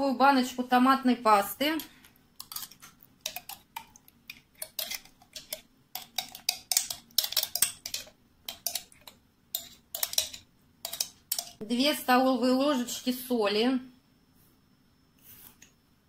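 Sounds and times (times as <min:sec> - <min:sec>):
metal utensil scraping glass jar: 0:01.8 - 0:11.6.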